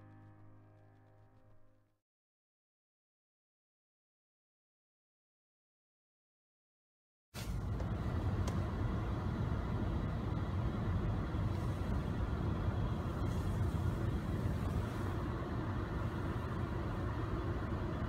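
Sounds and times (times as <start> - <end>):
blower fan air hiss: 7.4 - 18.0
engine idling rumble: 7.4 - 18.0.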